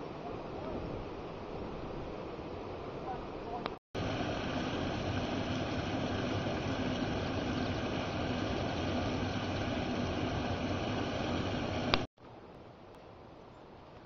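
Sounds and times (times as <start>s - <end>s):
water rushing over a weir: 4.0s - 12.1s.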